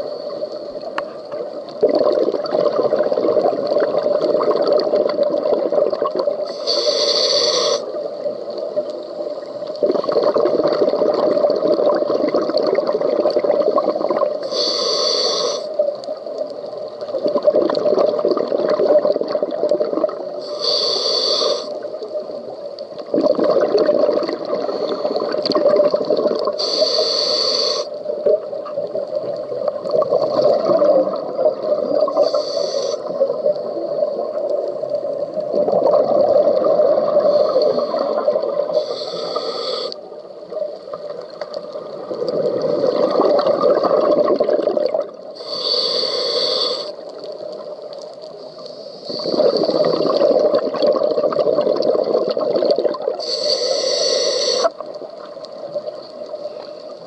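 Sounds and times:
regulator inhale hiss: 0:00.0 - 0:01.4, 0:06.4 - 0:09.8, 0:14.3 - 0:16.4, 0:20.3 - 0:22.6, 0:24.4 - 0:25.6, 0:26.5 - 0:28.3, 0:32.0 - 0:33.8, 0:37.0 - 0:41.9, 0:45.2 - 0:50.0, 0:53.1 - 0:55.0
exhaled air bubbling: 0:00.0 - 0:57.0.

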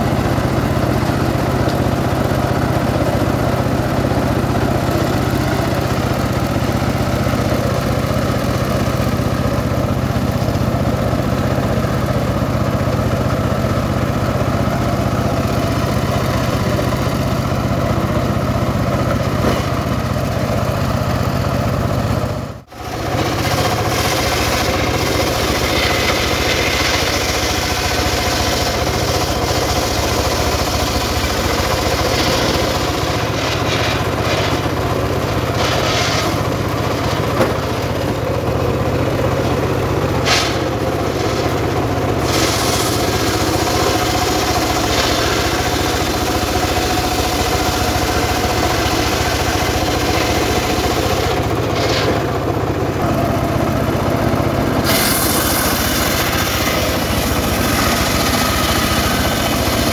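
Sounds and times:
sawmill engine running: 0:00.0 - 0:59.9
saw blade cutting log: 0:18.2 - 0:19.9, 0:22.7 - 0:53.6, 0:54.7 - 0:59.9.

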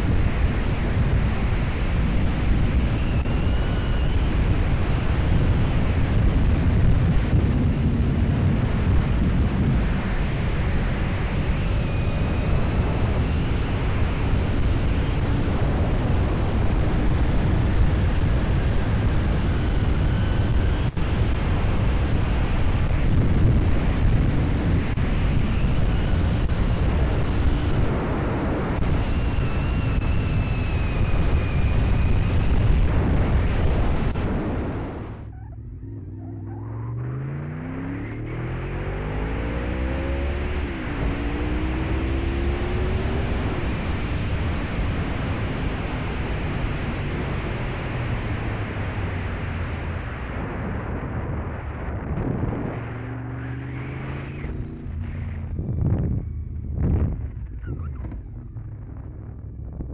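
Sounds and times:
wind noise on microphone: 0:00.0 - 0:35.4, 0:38.7 - 0:59.9
motorcycle engine: 0:33.7 - 0:38.0, 0:51.2 - 0:59.9.

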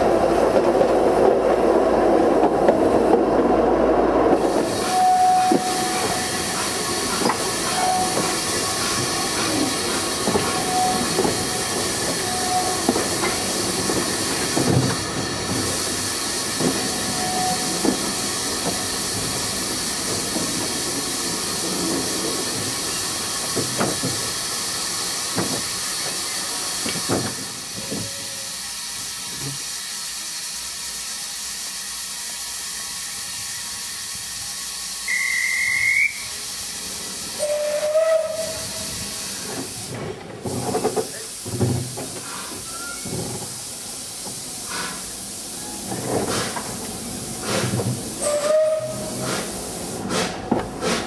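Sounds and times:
steam hissing: 0:01.8 - 0:51.0
steam locomotive exhaust beats: 0:04.2 - 0:51.0
steam locomotive whistle: 0:04.7 - 0:08.5, 0:10.3 - 0:13.0, 0:16.9 - 0:17.9, 0:35.0 - 0:36.5, 0:37.4 - 0:39.3, 0:48.2 - 0:49.5.

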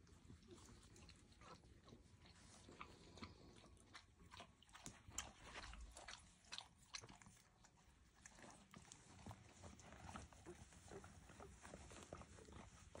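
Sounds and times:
dog licking or chewing: 0:00.0 - 0:13.0
puppies squirming and rustling: 0:00.0 - 0:13.0.

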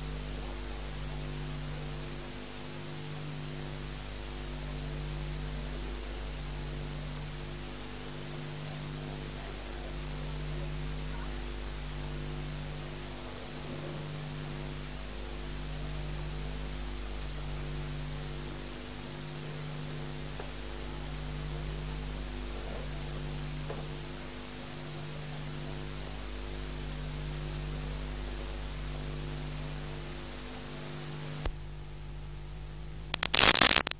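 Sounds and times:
tape hiss: 0:00.0 - 0:23.4, 0:33.0 - 0:33.9
mains hum: 0:00.0 - 0:33.9.

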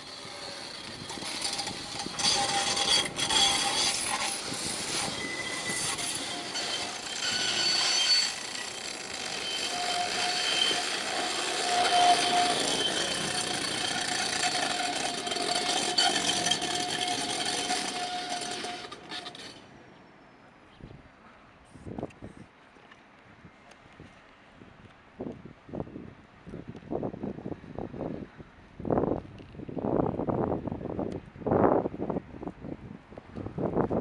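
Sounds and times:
high whining tones: 0:00.0 - 0:19.6
tram rolling on rails: 0:00.0 - 0:21.5.

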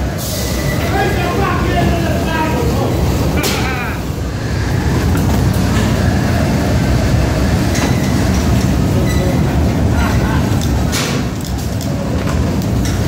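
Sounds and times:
low rumble of machinery: 0:00.0 - 0:13.0.

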